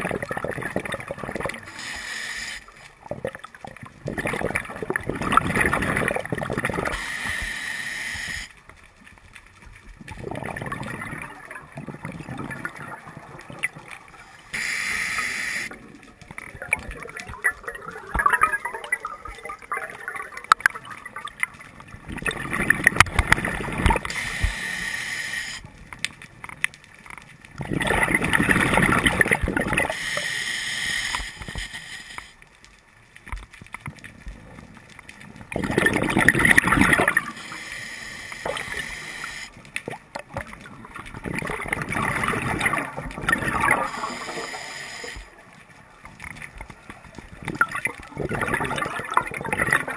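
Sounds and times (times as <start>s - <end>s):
diver exhaling bubbles underwater: 0.0s - 1.8s, 3.0s - 7.4s, 10.1s - 21.5s, 22.1s - 24.6s, 27.6s - 30.0s, 35.5s - 37.4s, 38.3s - 45.2s, 47.4s - 49.9s
quiet bubbling and clicks: 0.0s - 49.9s.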